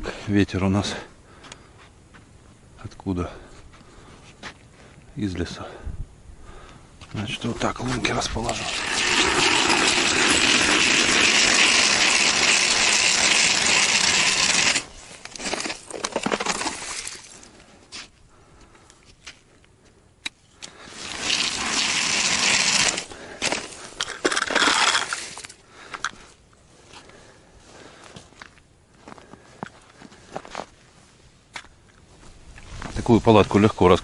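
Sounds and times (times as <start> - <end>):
ice auger grinding: 8.5 - 17.3, 20.7 - 25.6
ice knocking and crunching: 8.5 - 18.1, 21.0 - 26.1.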